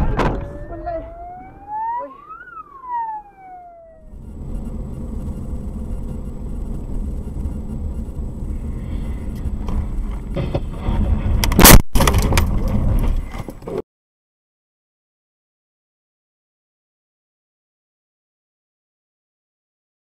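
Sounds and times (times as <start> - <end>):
siren wail: 0.0 - 9.6
car driving interior noise: 4.0 - 13.6
loud crash: 9.8 - 13.2.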